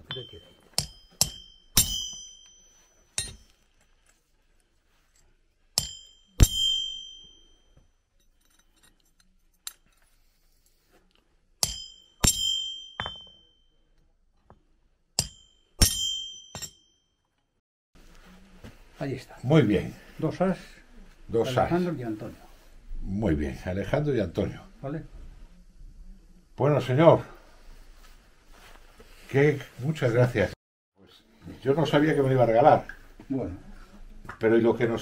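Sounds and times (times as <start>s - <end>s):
hammer striking metal punch: 0.0s - 3.5s, 5.8s - 7.5s, 11.6s - 13.6s, 15.2s - 16.9s.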